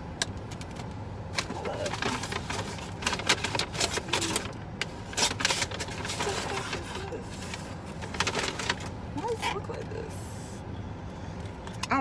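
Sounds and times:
food packaging rustling: 0.6 - 9.4.

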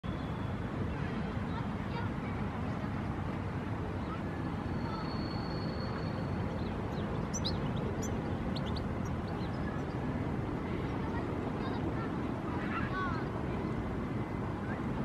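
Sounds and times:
distant traffic rumble: 0.0 - 15.0
high bird chirps: 4.8 - 10.0.

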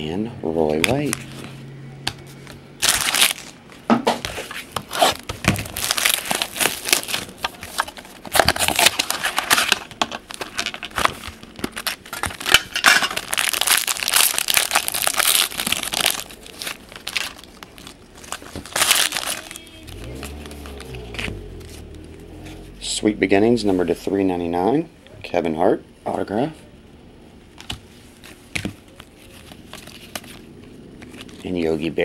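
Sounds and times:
foil wrapper crinkling: 2.8 - 3.6, 4.9 - 19.9.

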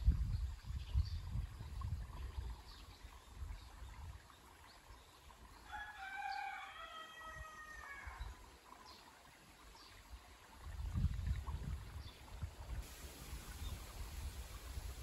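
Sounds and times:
rooster crowing: 5.7 - 8.2.

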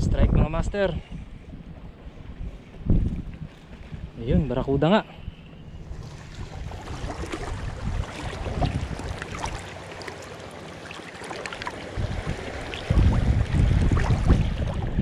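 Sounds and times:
sea water lapping against rocks: 5.8 - 15.0
small drips and splashes: 6.1 - 14.8.

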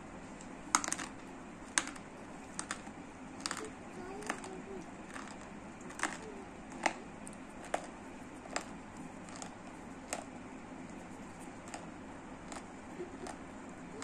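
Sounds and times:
sharp clicks: 0.4 - 10.3.

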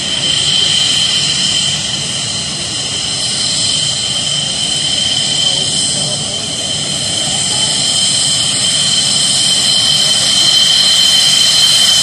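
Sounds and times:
jet engine whine: 0.0 - 12.0.

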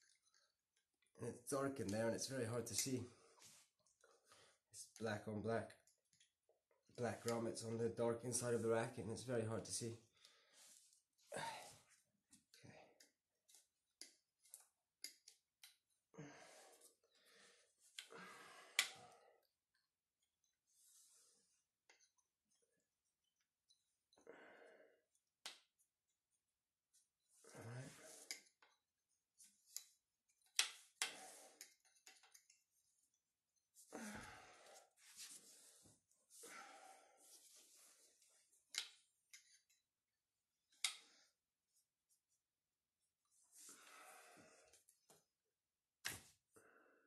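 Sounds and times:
plastic grommets clicking: 29.6 - 32.7.

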